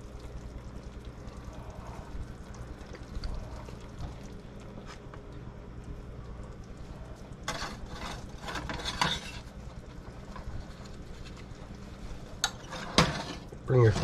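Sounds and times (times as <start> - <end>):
spatula scraping frying pan: 7.5 - 9.5.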